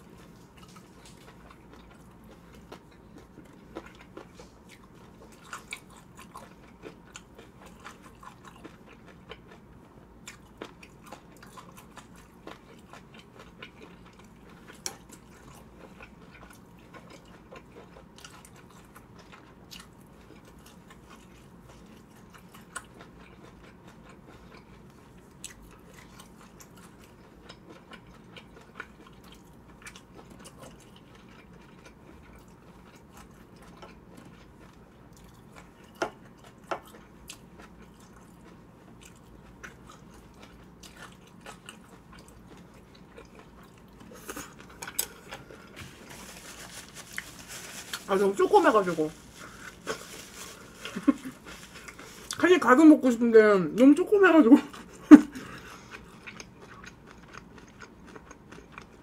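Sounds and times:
person chewing food: 0.0 - 48.1, 48.7 - 52.4, 54.6 - 59.0
faint room hum: 0.0 - 59.0.

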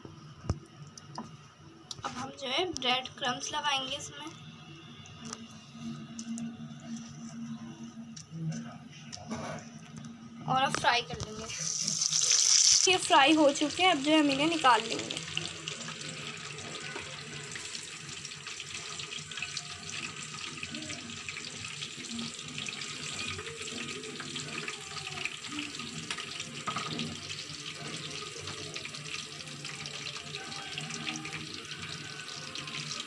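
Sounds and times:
chicken deep-frying in oil: 11.5 - 33.0.

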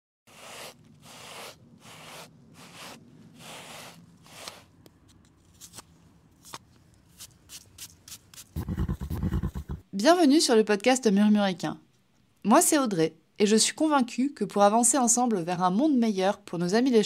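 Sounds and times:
rustling scraping strokes: 0.3 - 9.8.

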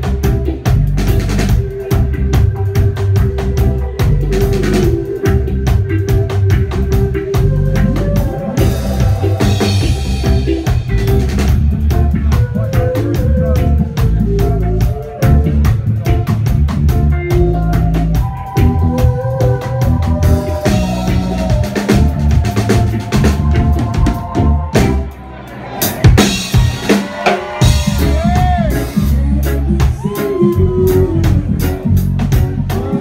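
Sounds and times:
bass guitar: 0.0 - 33.0
drum kit beat: 0.0 - 33.0
woman singing: 28.2 - 33.0.

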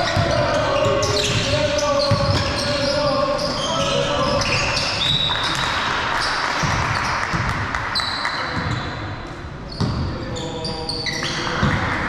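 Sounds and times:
sneakers squeaking on court: 0.0 - 11.8
basketball bouncing: 6.6 - 7.7.

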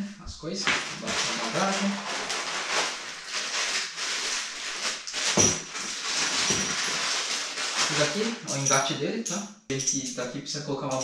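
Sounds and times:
plastic bag crinkling: 0.7 - 8.7.

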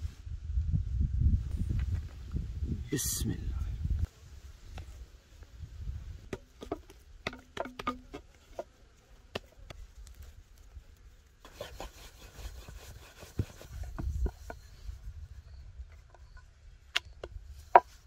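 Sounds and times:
knocks on wooden board: 6.3 - 8.2.

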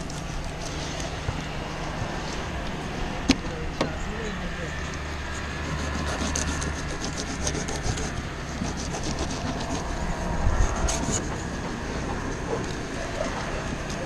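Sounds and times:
low rumble: 8.1 - 14.0.

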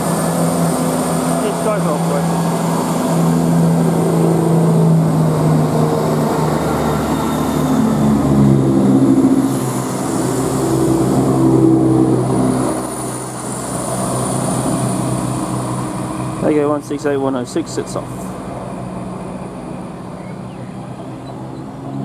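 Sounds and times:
train diesel engines working hard: 0.0 - 22.0.

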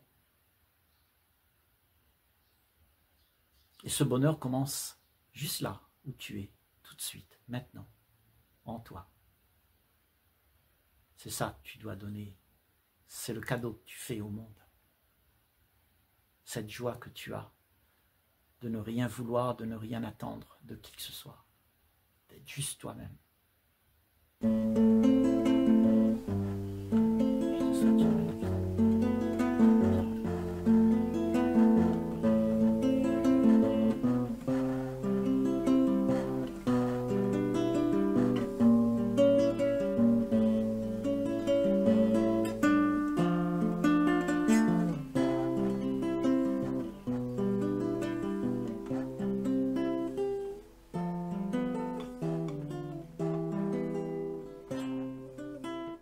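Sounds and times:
strummed acoustic guitar: 24.4 - 56.0.

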